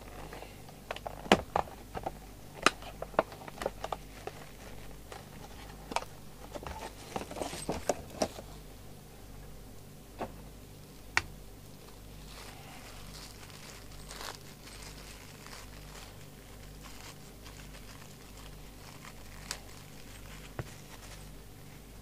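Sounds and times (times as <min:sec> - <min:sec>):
plastic bag crinkling: 0:02.8 - 0:08.4, 0:11.7 - 0:21.9.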